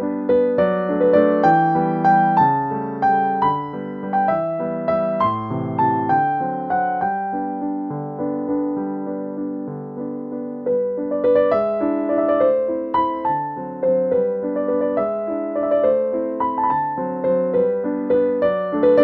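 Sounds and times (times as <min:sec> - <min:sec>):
piano music: 0:00.0 - 0:19.0.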